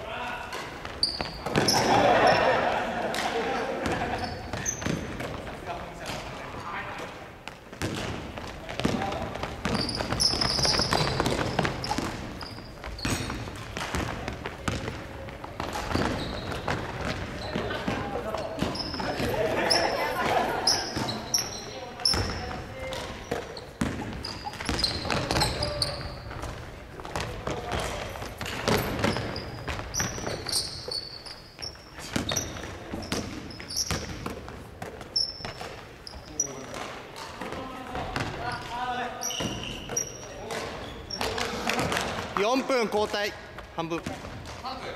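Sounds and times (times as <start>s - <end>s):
sneaker squeaks: 0.4s - 44.9s
basketball bouncing on wooden floor: 7.4s - 19.4s, 22.0s - 31.0s, 31.6s - 38.7s
basketball dribbling on wooden floor: 7.5s - 18.0s.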